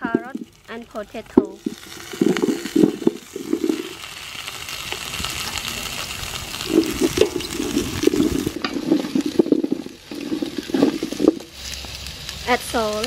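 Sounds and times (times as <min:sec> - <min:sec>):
vegetables sizzling in hot oil: 0:00.0 - 0:13.0
wooden spoon scraping a pot: 0:01.6 - 0:04.0, 0:06.7 - 0:11.8.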